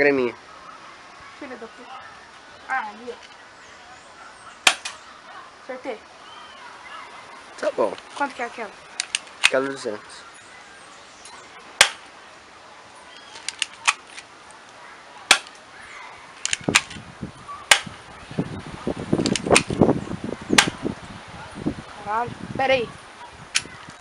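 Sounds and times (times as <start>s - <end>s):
handling rustle: 2.3s - 3.5s, 7.0s - 10.2s, 13.0s - 17.1s
airsoft gun shots: 4.6s - 5.0s, 11.8s - 12.1s, 15.3s - 15.5s, 17.7s - 18.0s, 20.6s - 20.8s
faint clicks: 16.4s - 17.0s.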